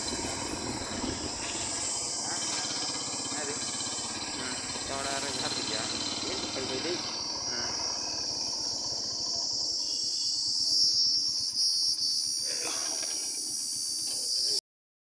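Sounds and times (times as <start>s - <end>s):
motorcycle engine running: 0.0s - 11.6s
high-pitched hiss: 0.0s - 14.6s.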